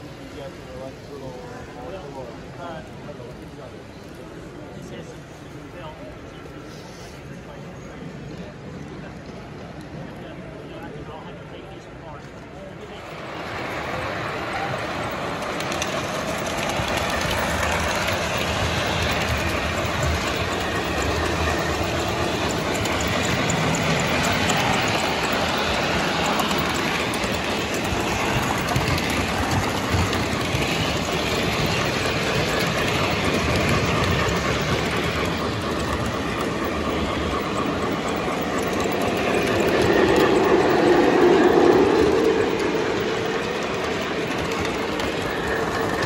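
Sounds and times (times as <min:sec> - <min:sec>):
model train wheels on track: 0:00.0 - 0:46.0.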